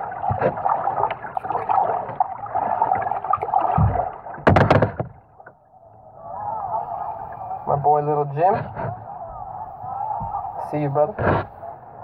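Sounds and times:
water sloshing against kayak hull: 0.0 - 12.0
paddle knocking on kayak: 1.6 - 5.2.

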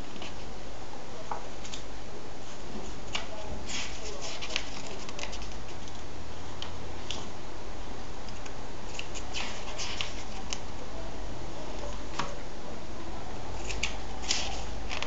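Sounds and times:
pages being turned: 2.8 - 6.0, 8.9 - 10.6, 13.6 - 15.0.

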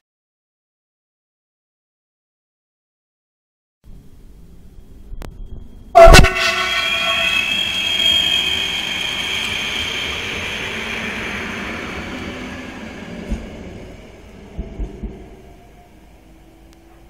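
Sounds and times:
high electric whine: 3.9 - 14.7
train wheels on rails: 5.6 - 17.0.

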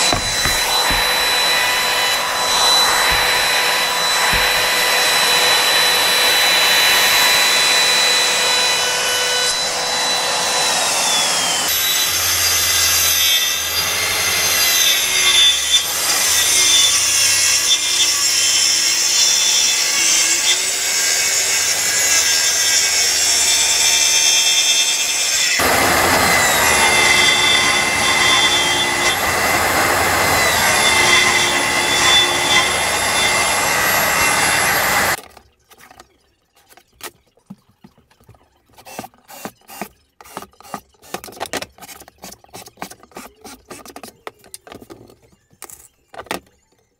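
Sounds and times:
router whining: 0.0 - 35.2
track saw cutting: 0.0 - 35.2.

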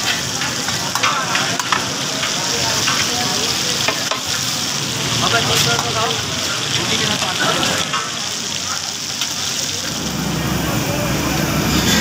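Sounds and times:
meat sizzling on a griddle: 0.0 - 12.0
metal spatula scraping griddle: 11.6 - 12.0.

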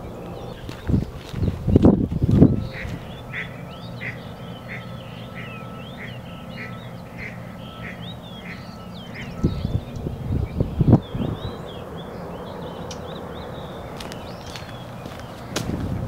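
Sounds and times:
footsteps on a wet path: 0.2 - 3.2, 13.8 - 16.0
repeating animal call: 2.4 - 9.8.

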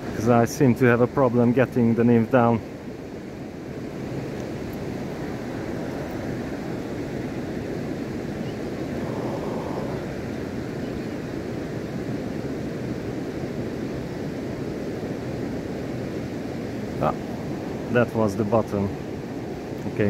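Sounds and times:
river rushing: 0.0 - 20.0.

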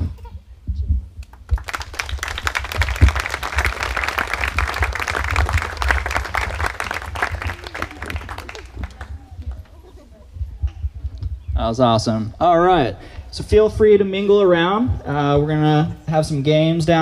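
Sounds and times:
crowd applauding: 1.4 - 9.8.

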